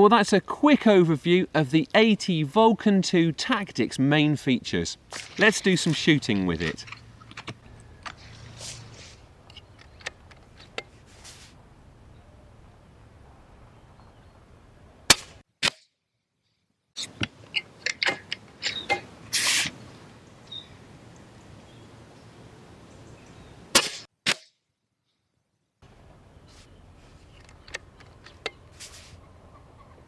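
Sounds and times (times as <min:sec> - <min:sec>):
metallic clicks of rifle lever: 0:17.1 - 0:19.0, 0:27.3 - 0:28.6
air rifle firing: 0:23.7 - 0:24.4.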